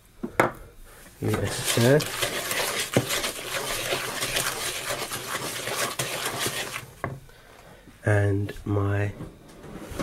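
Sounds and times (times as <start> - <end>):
spoon stirring thick dough: 1.2 - 7.0.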